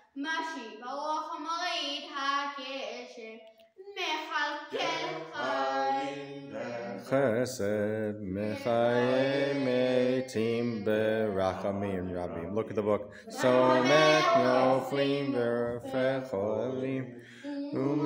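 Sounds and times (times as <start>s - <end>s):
boy chanting prayer: 3.8s - 18.0s
deeper voice chanting: 4.8s - 18.0s.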